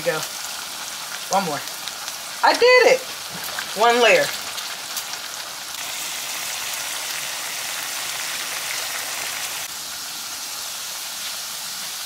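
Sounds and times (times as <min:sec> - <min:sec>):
potatoes sizzling in oil: 0:00.0 - 0:12.0.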